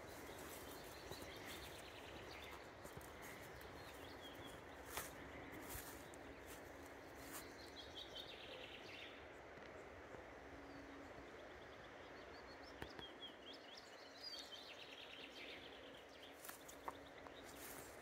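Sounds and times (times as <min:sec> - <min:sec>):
small birds chirping: 0:00.0 - 0:09.8, 0:10.6 - 0:18.0.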